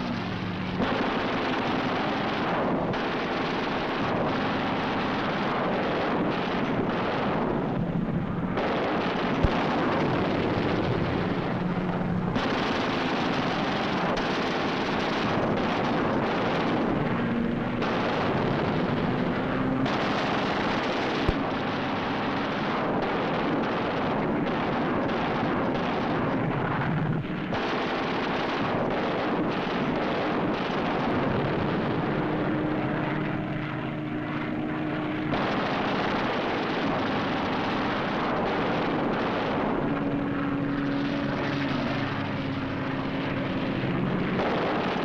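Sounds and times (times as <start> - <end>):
sharp cracks: 0.0 - 33.4, 34.5 - 45.0
aircraft engines droning: 0.0 - 45.0.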